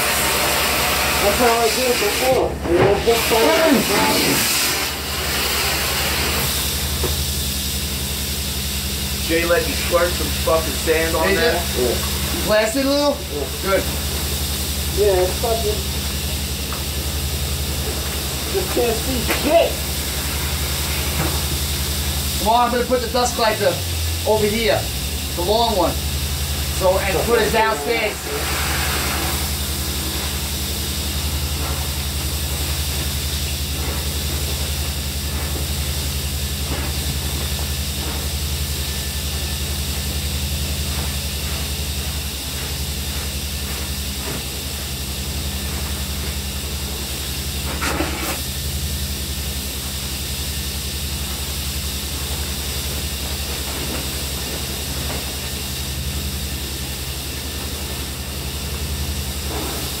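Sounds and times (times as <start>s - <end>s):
low machine hum: 0.0s - 60.0s
sandblaster air hiss: 0.0s - 60.0s.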